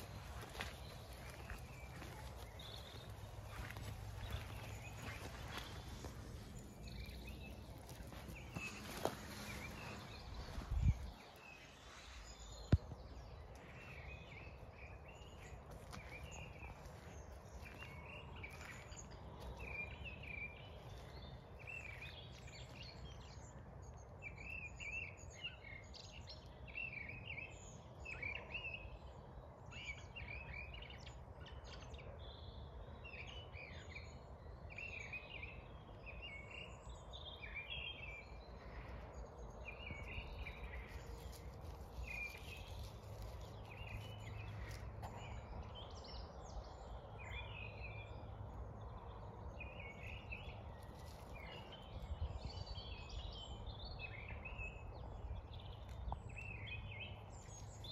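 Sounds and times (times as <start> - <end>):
low outdoor rumble: 0.0 - 24.4
birds singing: 0.0 - 57.9.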